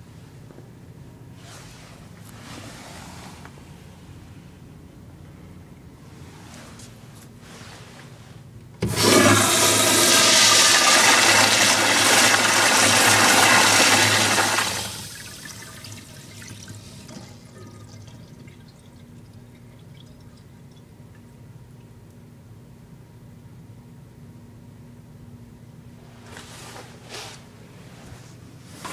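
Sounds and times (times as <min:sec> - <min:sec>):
toilet flushing water rush: 0:08.8 - 0:20.9
faint water trickle in bowl: 0:16.4 - 0:22.0.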